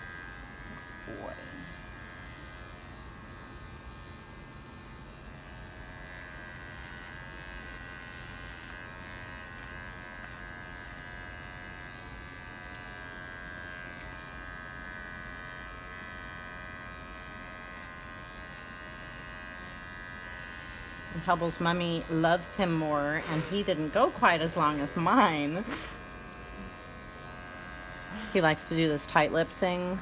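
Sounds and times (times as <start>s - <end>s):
electric clippers humming: 0.0s - 30.0s.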